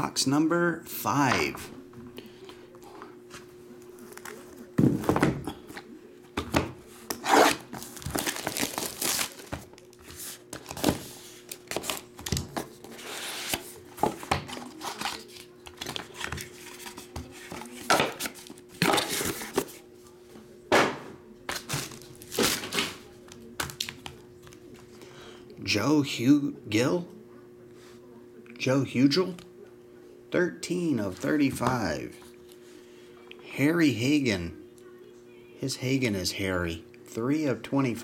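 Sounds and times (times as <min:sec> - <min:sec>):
plastic wrap crinkling and tearing: 0:07.2 - 0:12.2, 0:21.5 - 0:22.9.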